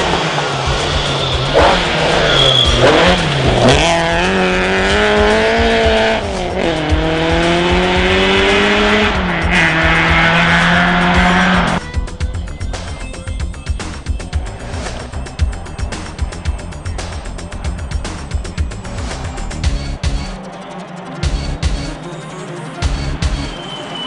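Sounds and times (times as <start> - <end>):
rally car engine revving: 0.0 - 11.8.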